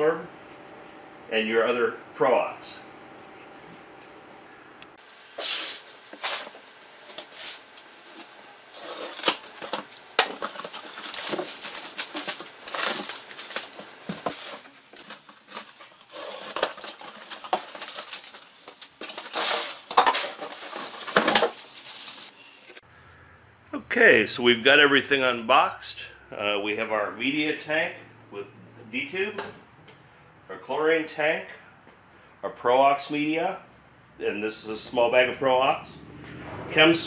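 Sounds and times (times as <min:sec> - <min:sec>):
plastic bags rustling: 0:05.1 - 0:22.8
knocks and clatters of parts: 0:09.1 - 0:21.8.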